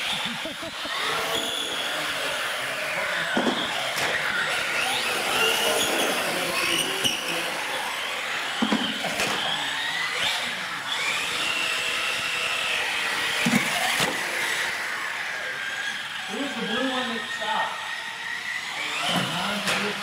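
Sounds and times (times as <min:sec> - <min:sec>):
radio-controlled car motors whining: 0:00.0 - 0:20.0.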